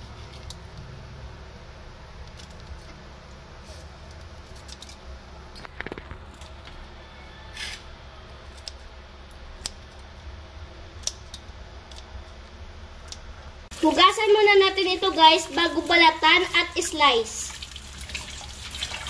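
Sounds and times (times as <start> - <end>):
scissors snipping shrimp shells: 8.5 - 8.9.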